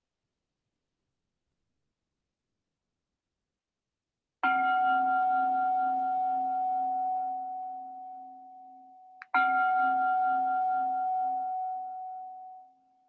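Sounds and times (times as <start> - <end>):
meditation bell ringing: 4.4 - 12.8.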